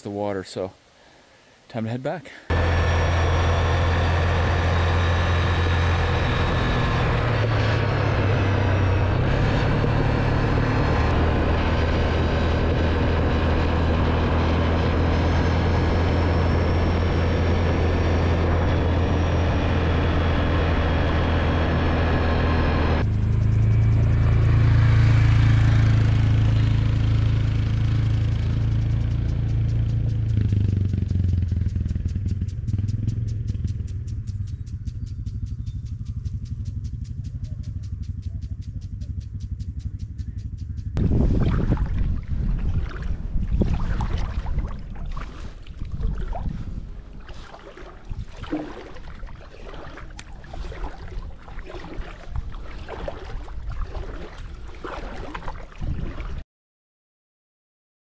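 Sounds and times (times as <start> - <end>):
vehicle engine running: 2.5 - 41.4.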